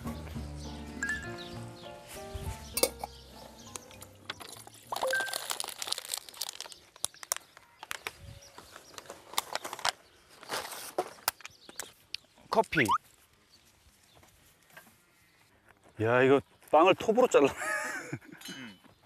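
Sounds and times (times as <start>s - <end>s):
cooking gear clicks and clinks: 2.8s - 8.1s
crinkling rustles: 3.7s - 12.1s.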